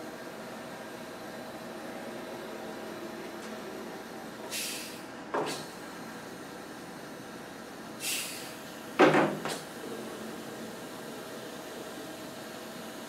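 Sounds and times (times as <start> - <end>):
compressed air hisses: 4.5 - 5.8, 8.0 - 8.6.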